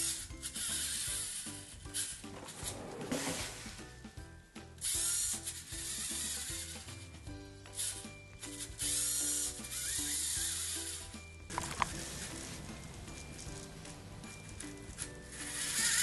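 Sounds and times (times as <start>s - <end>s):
soft background music: 0.0s - 16.0s
robot motors whirring: 8.6s - 12.4s, 15.4s - 16.0s.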